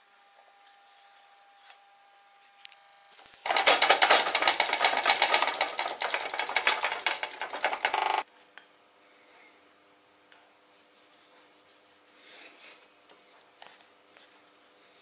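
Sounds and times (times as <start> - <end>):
sewing machine clattering: 3.4 - 8.2.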